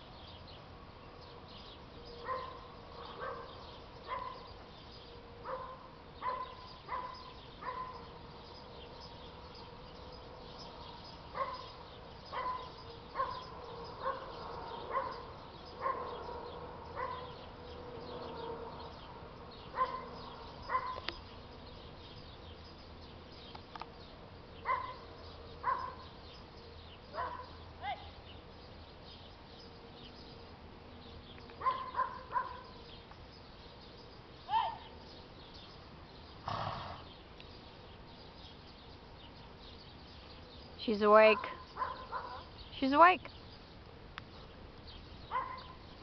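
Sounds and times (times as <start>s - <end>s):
dog barking: 2.2s - 4.5s, 5.4s - 8.1s, 11.4s - 11.7s, 12.3s - 14.3s, 14.9s - 15.2s, 15.8s - 16.3s, 17.0s - 17.3s, 19.8s - 21.0s, 24.6s - 25.0s, 25.6s - 26.0s, 27.1s - 28.0s, 31.6s - 32.7s, 41.3s - 42.5s, 45.3s - 45.8s.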